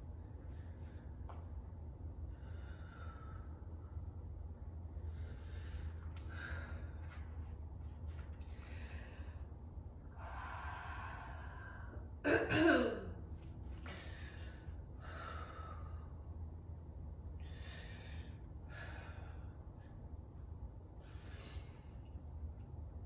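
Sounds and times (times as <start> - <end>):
steady low hum: 0.0 - 23.0
person breathing: 2.2 - 4.1, 5.0 - 12.2, 13.7 - 16.3, 17.4 - 20.1, 21.0 - 22.2.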